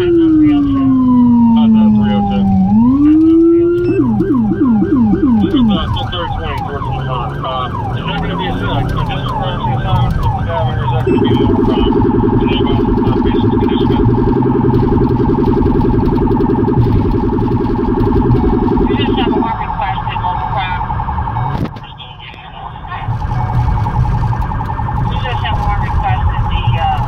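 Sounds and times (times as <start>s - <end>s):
deep low-frequency siren tone: 0.0s - 27.0s
police siren yelping: 0.0s - 27.0s.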